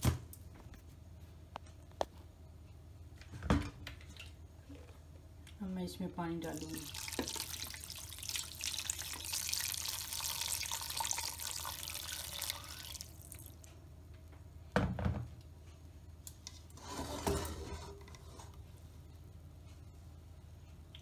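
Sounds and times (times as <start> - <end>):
water pouring into metal pot: 6.5 - 13.6.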